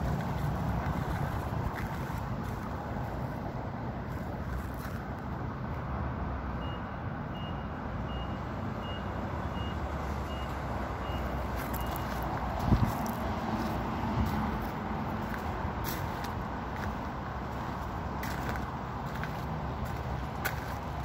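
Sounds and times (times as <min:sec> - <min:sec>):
reversing alarm beeping: 0:06.6 - 0:12.2.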